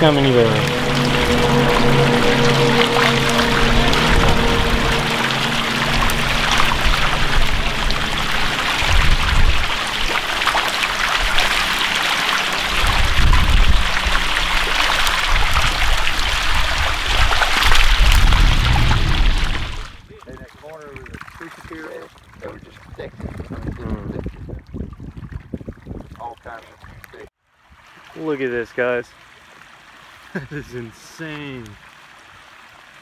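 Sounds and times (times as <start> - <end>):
low rumbles: 0.0 - 20.2
fish splashing at water surface: 0.0 - 23.8.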